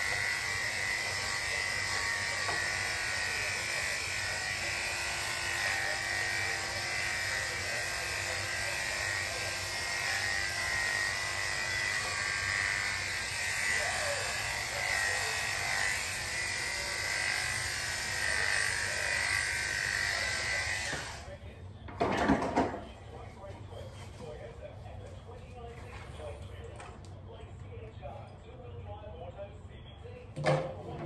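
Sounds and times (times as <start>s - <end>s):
electric clippers running: 0.0s - 21.3s.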